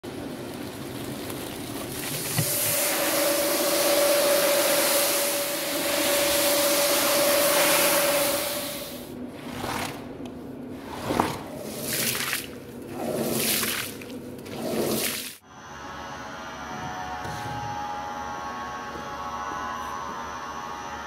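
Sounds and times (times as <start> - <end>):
floor-scrubbing machine running: 0.1 - 21.0
brush scrubbing wet rug: 7.1 - 15.4
water splashing: 9.3 - 15.4.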